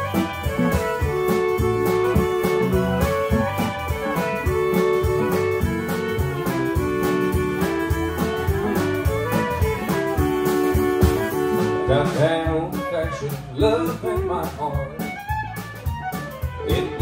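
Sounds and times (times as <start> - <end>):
country band playing: 0.0 - 17.0
fiddles playing melody: 0.0 - 17.0.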